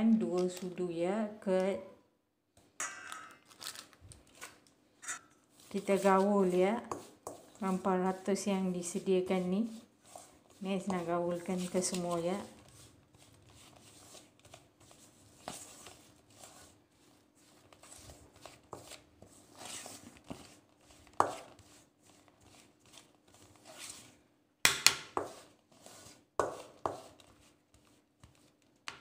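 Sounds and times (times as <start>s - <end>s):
metal spoon scraping a bowl: 5.0s - 5.3s.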